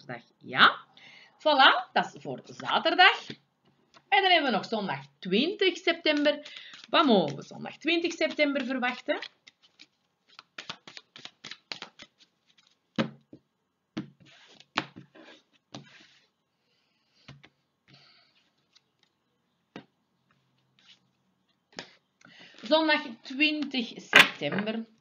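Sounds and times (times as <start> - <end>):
cards being shuffled: 5.8 - 13.2, 14.2 - 16.3, 20.8 - 22.7.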